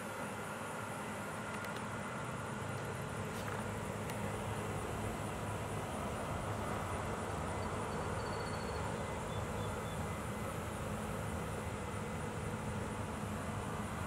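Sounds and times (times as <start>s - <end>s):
low rumble with hiss: 0.0s - 14.0s
faint high chirps: 7.5s - 10.2s.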